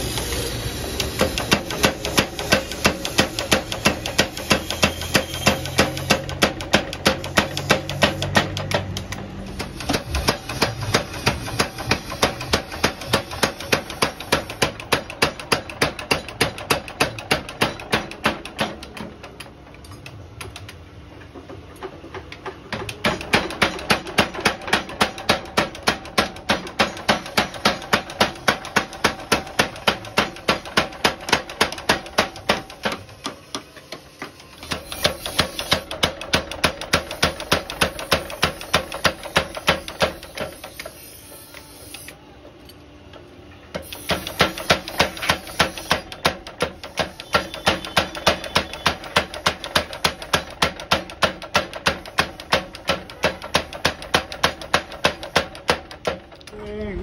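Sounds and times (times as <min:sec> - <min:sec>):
power hammer pounding steel: 0:00.0 - 0:19.4, 0:22.7 - 0:41.1, 0:43.8 - 0:56.4.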